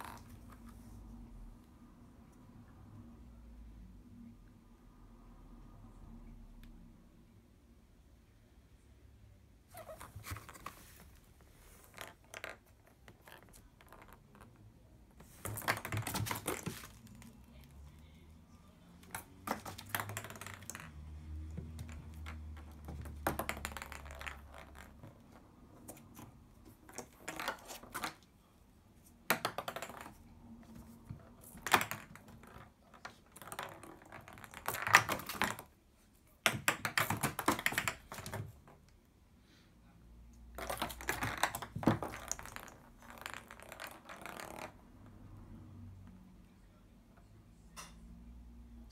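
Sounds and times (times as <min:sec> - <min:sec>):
small ball tapping: 0:19.0 - 0:28.2, 0:29.2 - 0:30.2, 0:36.4 - 0:38.8.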